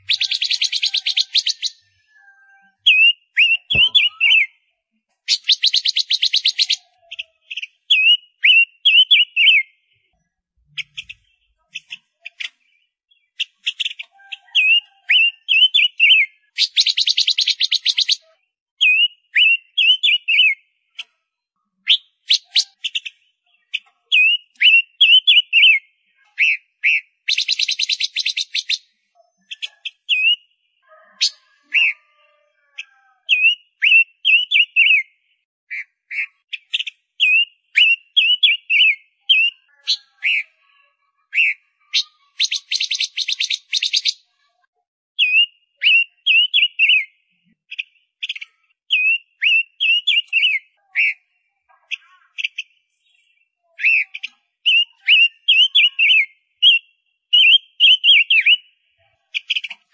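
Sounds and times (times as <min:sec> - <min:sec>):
finch chirping: 0:00.0 - 0:04.6, 0:05.3 - 0:09.8, 0:10.7 - 0:21.1, 0:21.8 - 0:32.2, 0:32.8 - 0:35.1, 0:35.7 - 0:40.6, 0:41.3 - 0:44.4, 0:45.2 - 0:51.3, 0:51.9 - 0:59.9.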